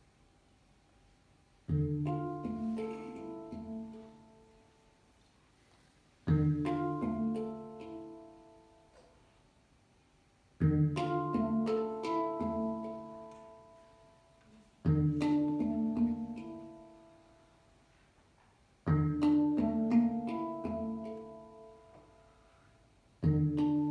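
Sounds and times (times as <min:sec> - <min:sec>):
handpan notes ringing: 0:01.7 - 0:05.1, 0:06.2 - 0:09.1, 0:10.6 - 0:17.8, 0:18.8 - 0:23.9.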